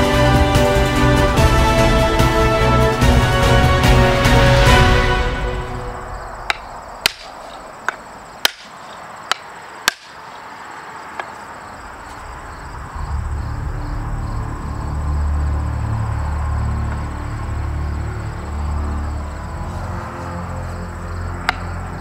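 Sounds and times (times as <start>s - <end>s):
low steady rumble: 11.8s - 20.1s.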